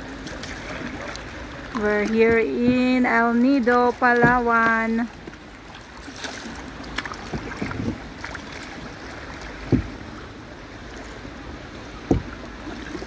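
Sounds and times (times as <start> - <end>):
paddle splashing in water: 0.0 - 13.0
dull knock: 9.7 - 9.9, 12.1 - 12.3.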